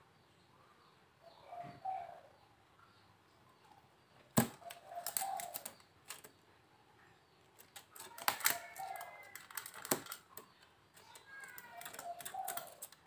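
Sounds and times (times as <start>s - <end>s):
rattan birdcage clicks: 4.5s - 6.4s, 7.6s - 13.0s.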